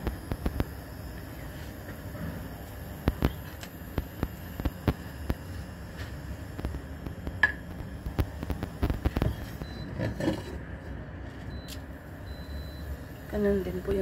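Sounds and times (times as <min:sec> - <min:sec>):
steady hum: 0:00.0 - 0:14.0
oil ticking and popping in pan: 0:06.7 - 0:09.3.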